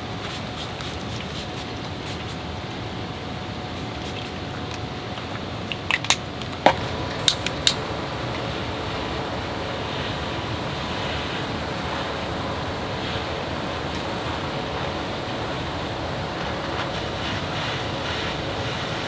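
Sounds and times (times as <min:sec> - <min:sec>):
sharp clicks and snaps: 0:03.8 - 0:07.8
heavy rain on tent fabric: 0:06.6 - 0:19.0.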